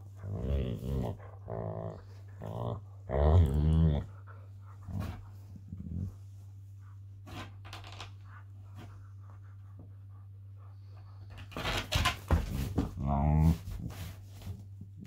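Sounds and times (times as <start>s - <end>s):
dogs scuffling and scratching: 11.2s - 14.9s.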